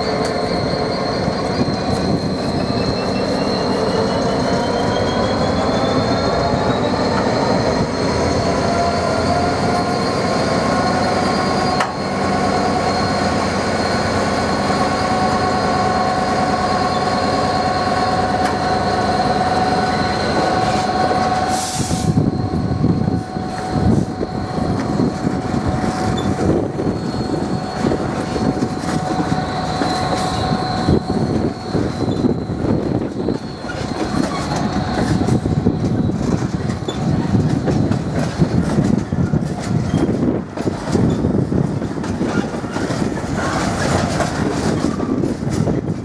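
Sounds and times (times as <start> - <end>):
faint wheel squeal: 0.0 - 25.2, 25.8 - 37.3
diesel locomotive engine: 0.0 - 46.0
train wheels clattering over rails: 24.7 - 46.0.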